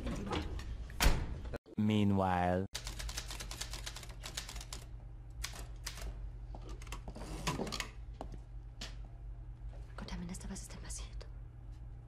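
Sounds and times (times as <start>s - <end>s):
typewriter keys clacking: 2.8s - 6.0s
steady low hum: 7.9s - 12.0s.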